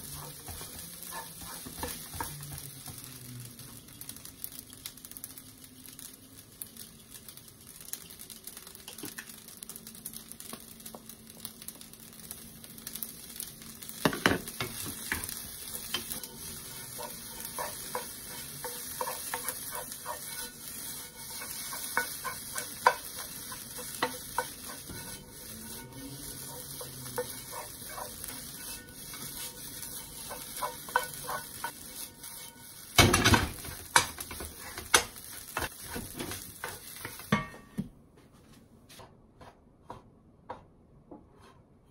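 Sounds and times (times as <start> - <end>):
spatula scraping and tapping pan: 0.0 - 3.7, 14.0 - 37.9, 38.9 - 41.9
rice sizzling in a pan: 0.0 - 37.9.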